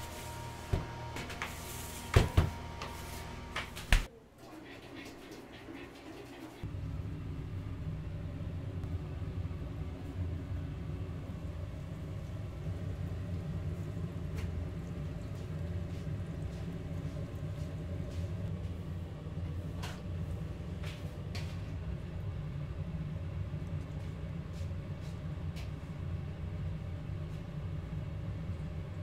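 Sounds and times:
machine humming: 0:00.0 - 0:04.1.

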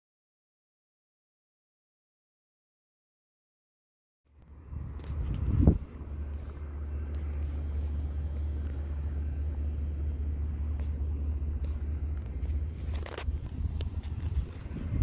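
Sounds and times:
wind buffeting microphone: 0:04.7 - 0:06.5, 0:12.6 - 0:15.0.

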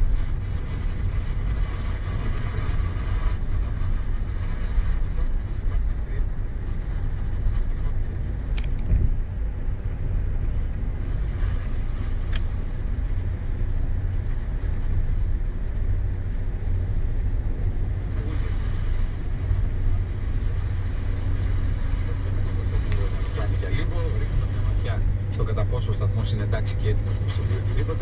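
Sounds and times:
tyre and engine noise in car cabin: 0:00.0 - 0:28.0
brief clicks: 0:08.5 - 0:09.0.

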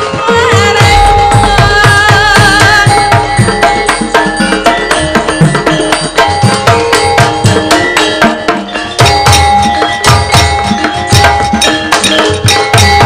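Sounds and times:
hand drum rapid strokes: 0:00.0 - 0:13.0
ringing metallophones: 0:00.0 - 0:13.0.

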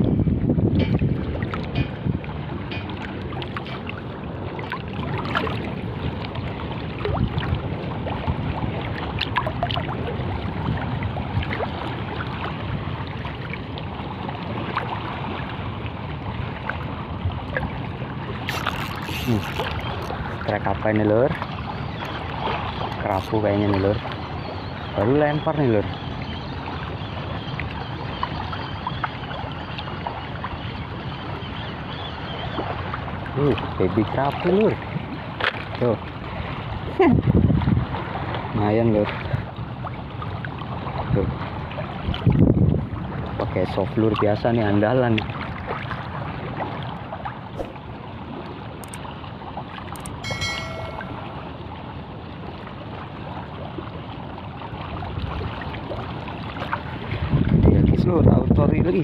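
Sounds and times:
sea water moving around boat: 0:00.0 - 0:59.0
small waves lapping at shoreline: 0:00.0 - 0:59.0
wind rumbling on microphone: 0:00.0 - 0:59.0
ringing chime: 0:50.1 - 0:51.5.

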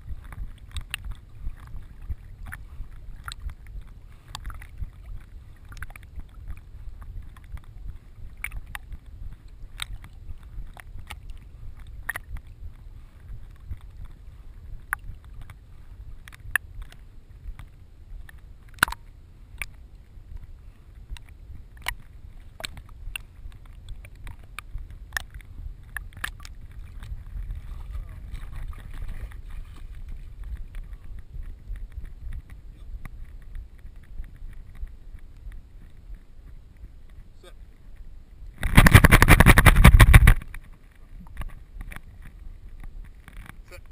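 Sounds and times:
water sloshing against camera: 0:00.0 - 0:43.9
sharp clicks and knocks: 0:38.6 - 0:40.7.

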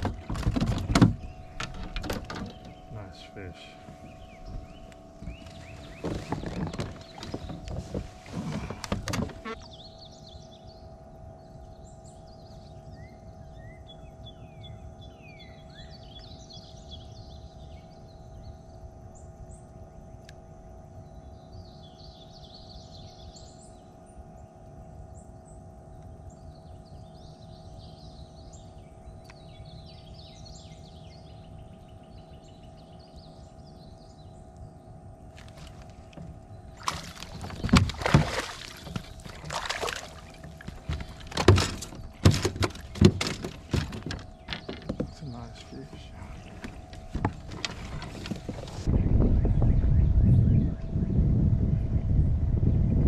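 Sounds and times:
birds chirping: 0:00.0 - 0:19.6, 0:21.0 - 0:51.2
mechanical motor hum: 0:00.0 - 0:53.0.

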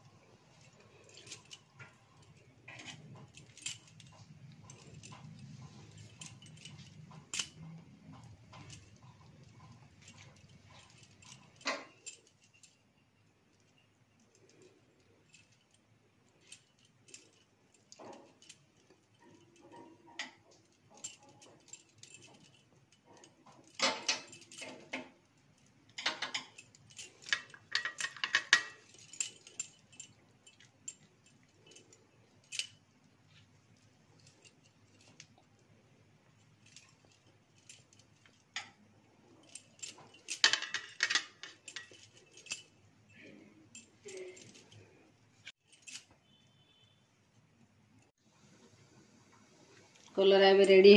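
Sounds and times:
bangles jingling: 0:00.0 - 0:48.1.

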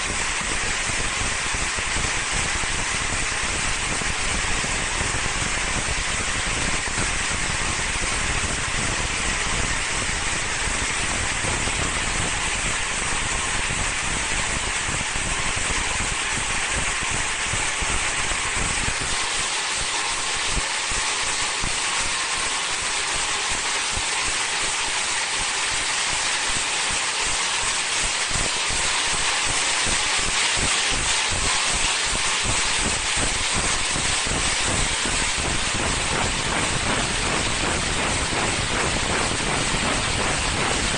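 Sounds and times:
plastic film hissing over rollers: 0:00.0 - 0:40.9
low rumble: 0:35.0 - 0:40.9.

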